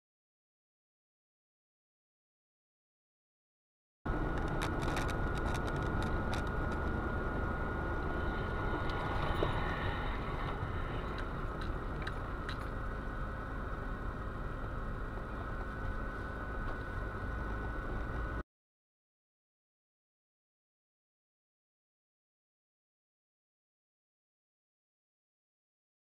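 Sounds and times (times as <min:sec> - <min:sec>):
car engine and road rumble: 0:04.1 - 0:18.4.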